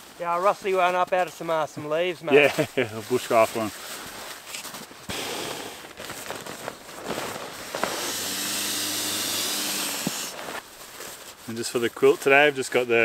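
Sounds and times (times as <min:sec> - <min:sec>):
nylon gear rustling: 0:02.4 - 0:12.5
steady airy hiss: 0:05.0 - 0:06.0, 0:07.6 - 0:12.6.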